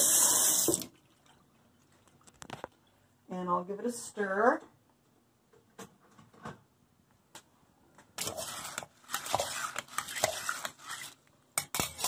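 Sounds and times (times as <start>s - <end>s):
lentils stirred scraping sloshing: 8.2s - 12.0s.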